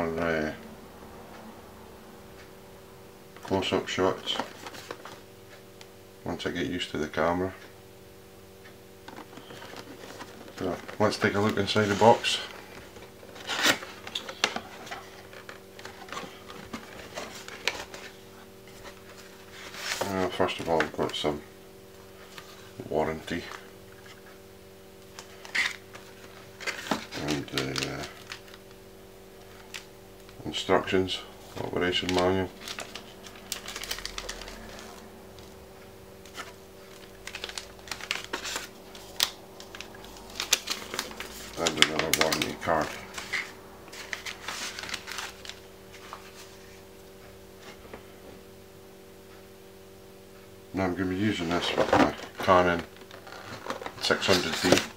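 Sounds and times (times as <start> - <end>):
faint steady hum: 0.0 - 54.9
cardboard and paper rustling: 3.4 - 5.6, 9.0 - 21.4, 25.1 - 28.8, 29.4 - 35.6, 36.2 - 46.9, 51.2 - 54.9.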